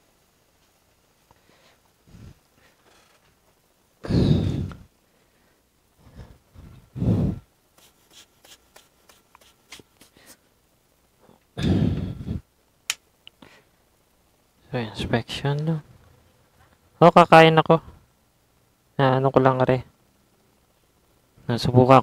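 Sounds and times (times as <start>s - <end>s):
breath puffs: 4.0s - 5.4s, 6.0s - 10.4s.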